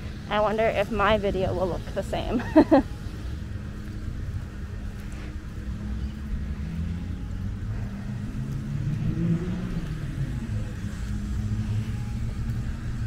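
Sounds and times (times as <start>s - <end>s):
car engines rumbling: 0.0s - 13.0s
car engine revving: 5.0s - 13.0s.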